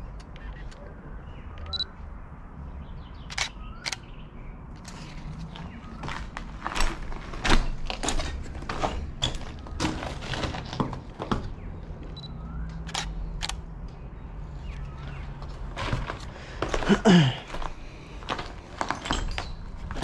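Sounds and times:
footsteps on broken tiles: 0:04.9 - 0:11.6, 0:15.0 - 0:20.0.

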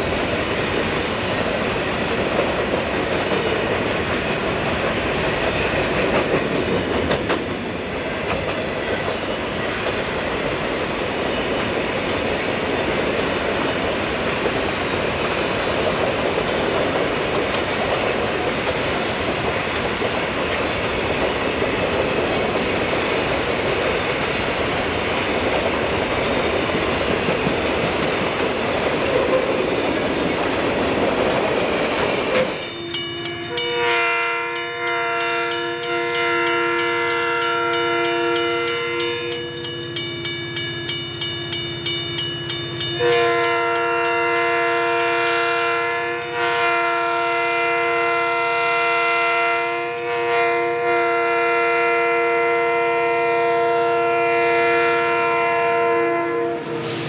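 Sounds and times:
train wheels rumbling on rail: 0:00.0 - 0:57.0
crossing bell ringing: 0:32.5 - 0:47.1
locomotive air horn: 0:32.8 - 0:39.4, 0:43.0 - 0:57.0.

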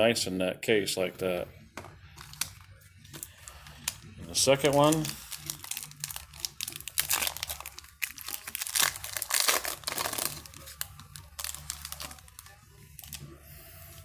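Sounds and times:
foil wrapper crinkling and tearing: 0:02.2 - 0:13.3.

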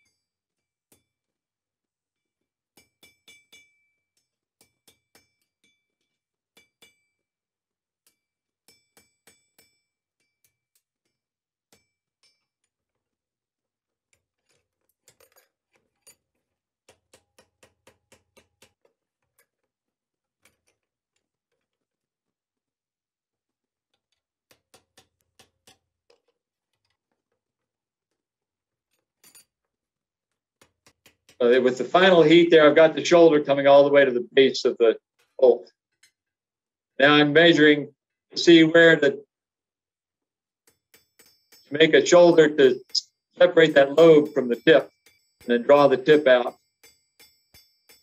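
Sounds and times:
metallic ring of anvil: 0:02.8 - 0:05.9, 0:11.8 - 0:12.5, 0:40.7 - 0:48.0
hammer blows on hot iron: 0:41.2 - 0:46.6.

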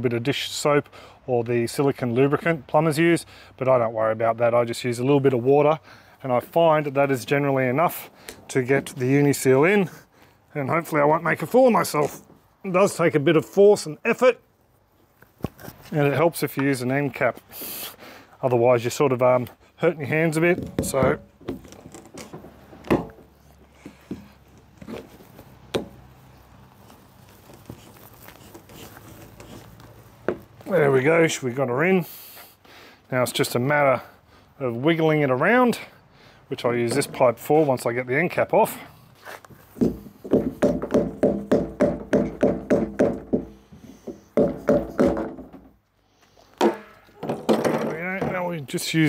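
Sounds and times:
pipe knocking and scuffing: 0:39.2 - 0:45.7.

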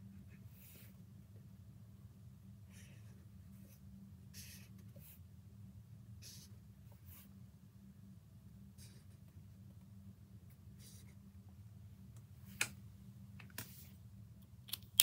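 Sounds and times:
faint low hum: 0:00.0 - 0:15.0
marker pen scratching on paper: 0:02.8 - 0:05.2, 0:06.2 - 0:07.3, 0:08.8 - 0:09.3, 0:10.8 - 0:11.2.

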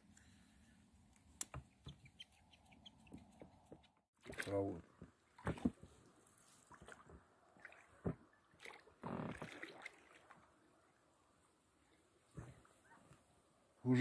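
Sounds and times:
oars splashing through water: 0:04.2 - 0:10.6.

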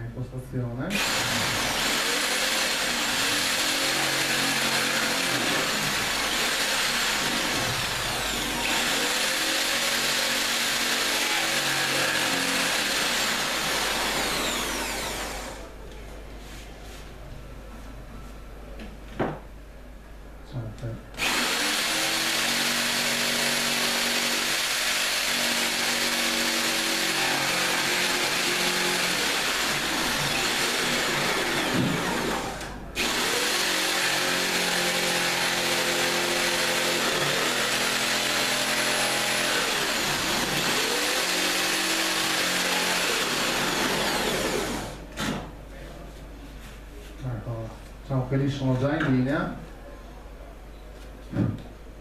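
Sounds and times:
jigsaw cutting worktop: 0:00.9 - 0:15.6, 0:21.2 - 0:45.4.

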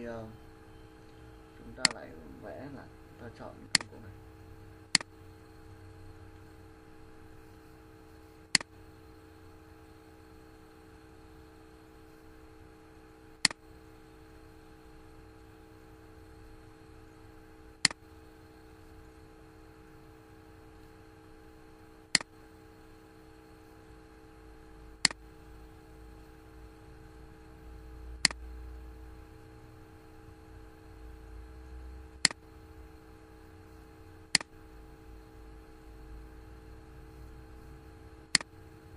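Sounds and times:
faint electrical hum: 0:00.0 - 0:38.9
computer mouse clicks: 0:01.8 - 0:02.0, 0:03.7 - 0:04.0, 0:04.9 - 0:05.1, 0:08.5 - 0:08.7, 0:28.2 - 0:28.4, 0:34.3 - 0:34.5, 0:38.3 - 0:38.6.

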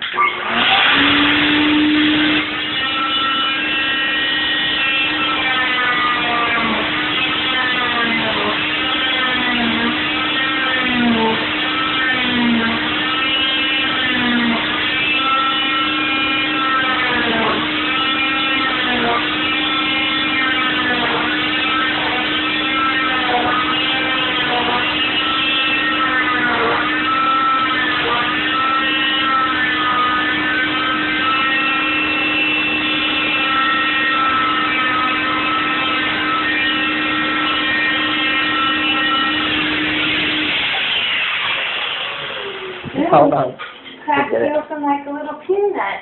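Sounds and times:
cast saw whining: 0:00.0 - 0:45.0.

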